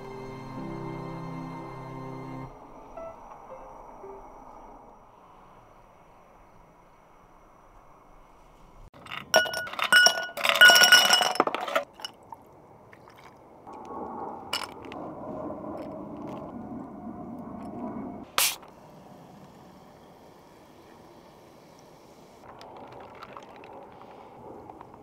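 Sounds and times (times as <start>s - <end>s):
ice cubes clinking in glass: 9.0s - 12.2s
liquid pouring over ice: 22.5s - 24.3s.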